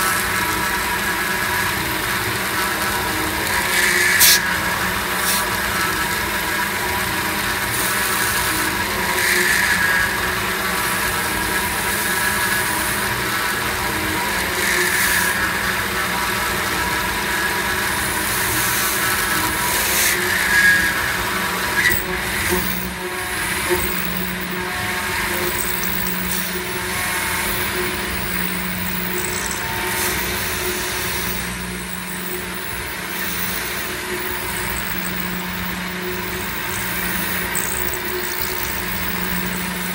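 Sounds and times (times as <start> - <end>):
milling machine whine: 0.0 - 39.9
metal chips ticking: 21.8 - 39.9.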